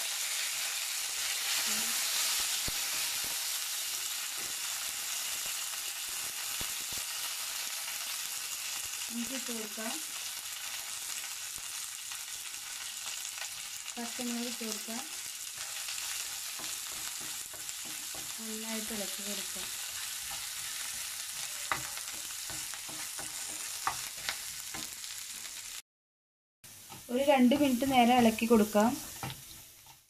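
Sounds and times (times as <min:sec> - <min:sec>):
spices sizzling in hot oil: 0:00.0 - 0:25.8, 0:26.7 - 0:30.0
spatula stirring in pan: 0:15.1 - 0:25.7, 0:26.7 - 0:30.0.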